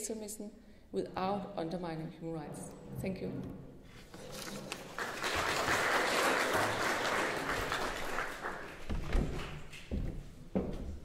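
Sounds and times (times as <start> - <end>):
audience applauding: 4.6 - 9.8.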